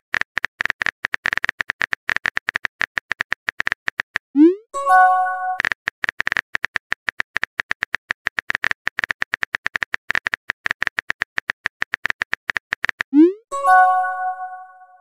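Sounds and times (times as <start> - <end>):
message sent chime: 4.4 - 5.6, 13.2 - 15.0
keyboard typing clicks: 5.5 - 14.6.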